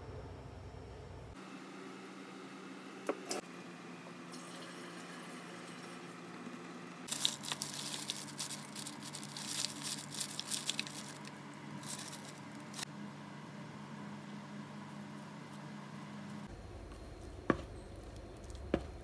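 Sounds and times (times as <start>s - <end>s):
paper bag crinkling: 7.1s - 12.8s.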